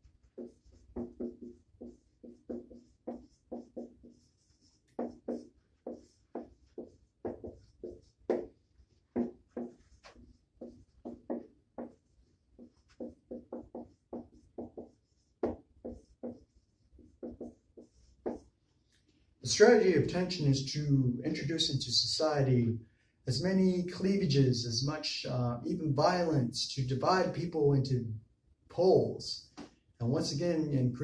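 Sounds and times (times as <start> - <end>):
marker writing on whiteboard: 0.0 - 20.4.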